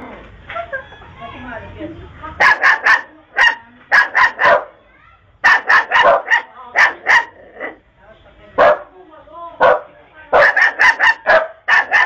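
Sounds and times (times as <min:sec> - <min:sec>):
dog barking: 0:02.4 - 0:04.8, 0:05.4 - 0:07.8, 0:08.6 - 0:08.9, 0:09.6 - 0:12.0.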